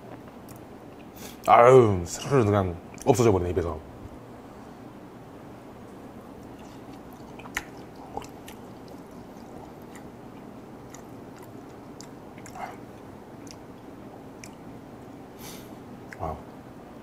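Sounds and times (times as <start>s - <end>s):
man chewing: 6.4s - 14.8s.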